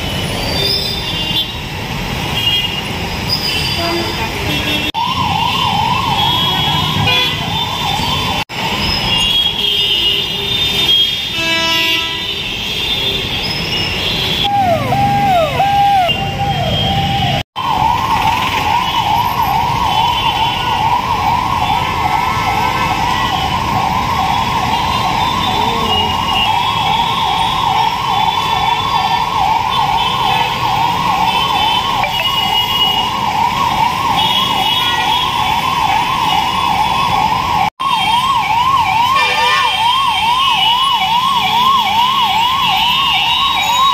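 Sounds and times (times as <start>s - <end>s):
ambulance siren yelping: 4.9s - 9.2s, 14.4s - 43.9s
stalled traffic noise: 13.3s - 43.9s.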